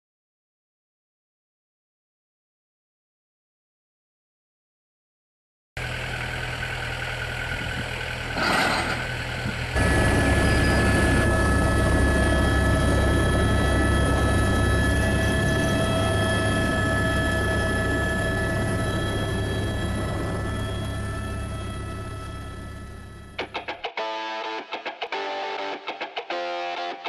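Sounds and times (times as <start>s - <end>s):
rotor low drone: 5.8s - 23.4s
helicopter turbine whine: 5.8s - 23.9s.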